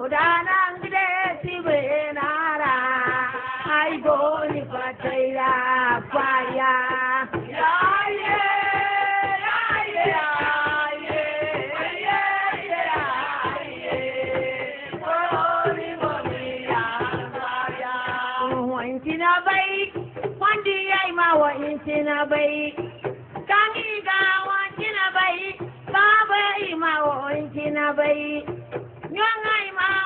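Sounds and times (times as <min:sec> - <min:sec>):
music: 0:00.0 - 0:30.0
woman singing into microphone: 0:00.0 - 0:30.0.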